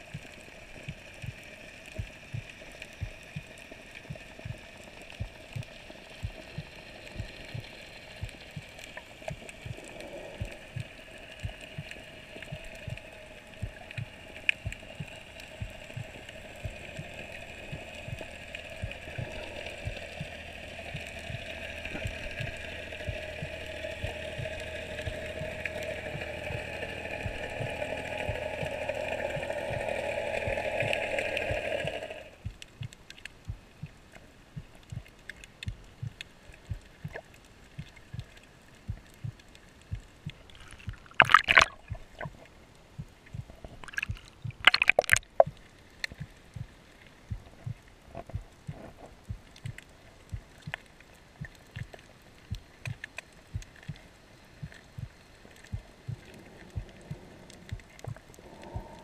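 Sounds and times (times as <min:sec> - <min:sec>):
underwater clicks and crackles: 0:00.0 - 0:59.0
steady two-pitch hum: 0:54.9 - 0:59.0.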